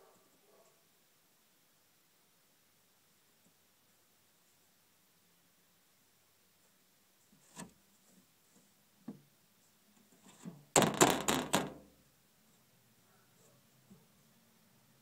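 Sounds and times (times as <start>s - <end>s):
knocks on hard surface: 10.8s - 11.8s.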